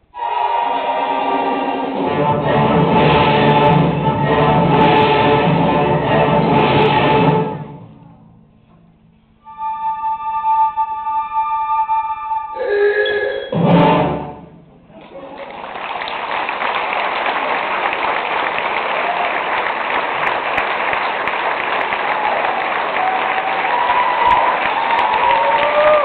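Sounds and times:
audience applause: 0:15.0 - 0:26.0.

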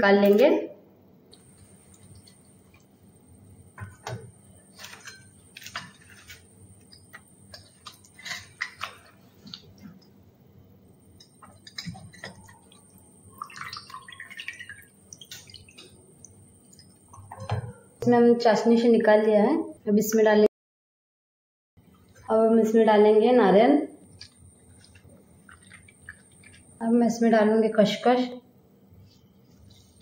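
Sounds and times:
wet squelching: 0:24.1 - 0:26.8.

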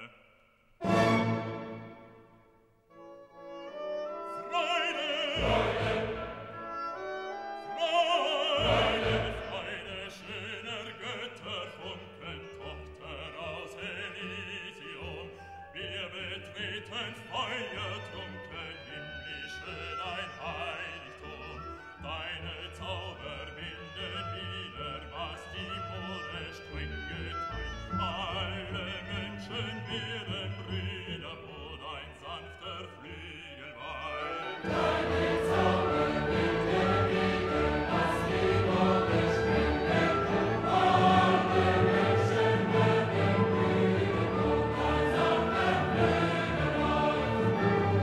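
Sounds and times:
orchestra playing: 0:00.8 - 0:11.9, 0:33.8 - 0:48.0
operatic vibrato singing: 0:03.7 - 0:48.0.

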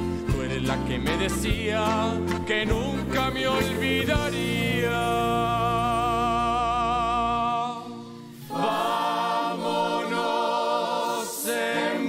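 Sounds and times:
choir singing held notes: 0:03.0 - 0:12.0.

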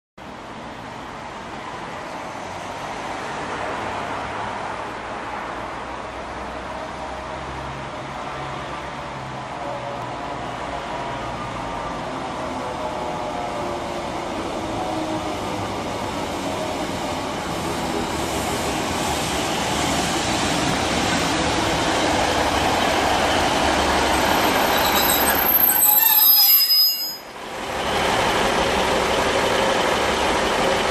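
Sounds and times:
diesel train running: 0:12.8 - 0:30.9
high brake squeal: 0:23.4 - 0:27.4.

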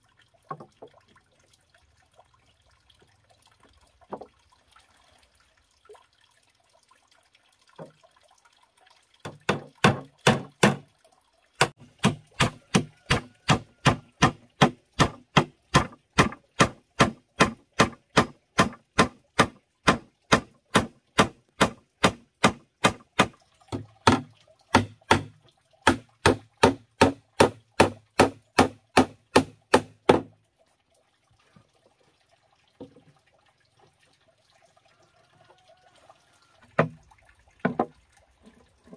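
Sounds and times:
hammer striking wooden boards: 0:09.3 - 0:10.8, 0:11.6 - 0:30.3.

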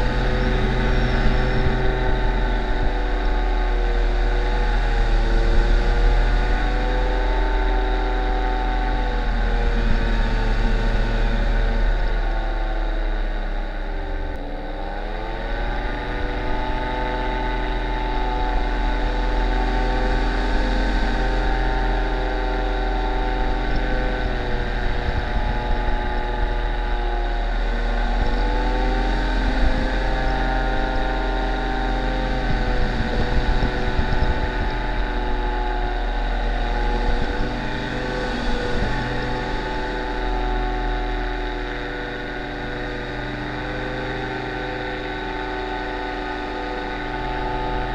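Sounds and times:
paramotor engine droning: 0:00.0 - 0:47.9.

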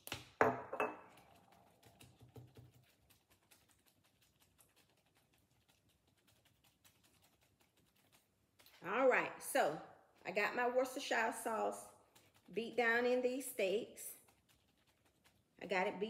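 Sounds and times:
glass bottle set down on counter: 0:00.4 - 0:01.0.

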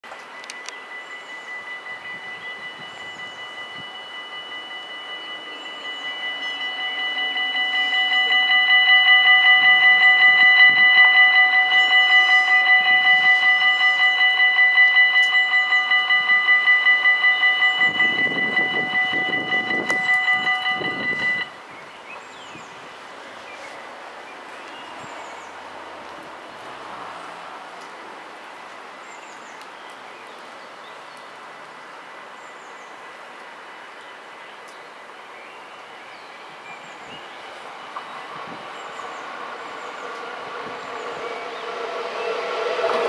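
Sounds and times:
level crossing bells ringing: 0:00.0 - 0:21.6, 0:36.8 - 0:43.0
low rumble: 0:38.0 - 0:43.0.

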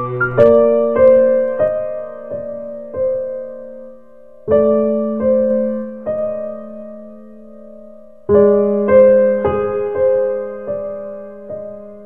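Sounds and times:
slow gentle piano notes: 0:00.0 - 0:12.0.

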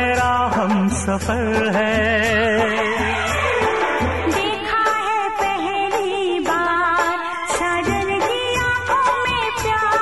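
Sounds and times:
film song music: 0:00.3 - 0:06.2.

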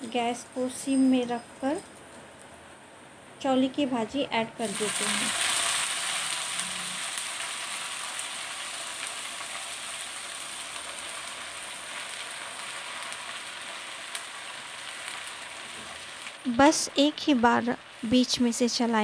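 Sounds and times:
leaves sizzling in hot oil: 0:04.6 - 0:19.0.

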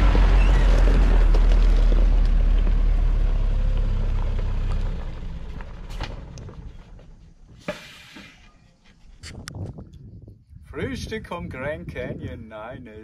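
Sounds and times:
diesel truck engine passing: 0:00.0 - 0:06.4.

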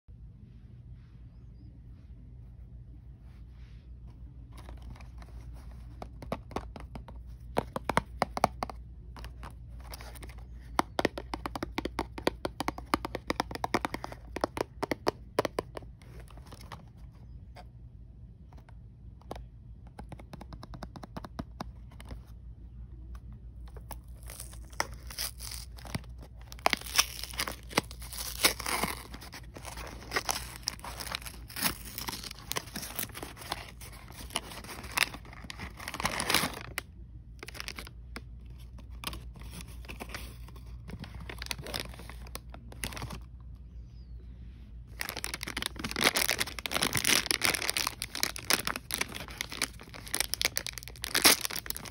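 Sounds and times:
clicks and taps on cardboard box: 0:06.0 - 0:16.7, 0:19.2 - 0:22.2
cardboard ripping and crinkling: 0:24.1 - 0:36.8, 0:41.1 - 0:43.1, 0:45.0 - 0:51.9.

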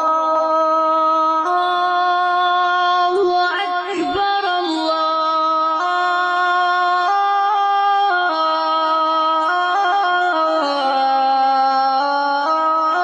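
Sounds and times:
person singing devotional song: 0:00.0 - 0:13.0.

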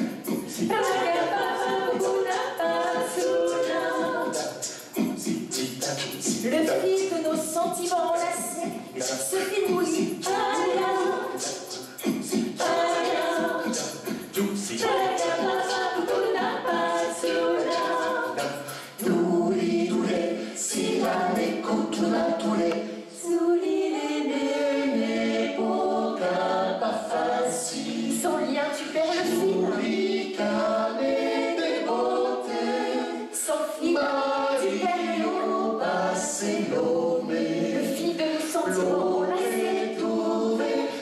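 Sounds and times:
group singing a cappella: 0:00.0 - 0:41.0.

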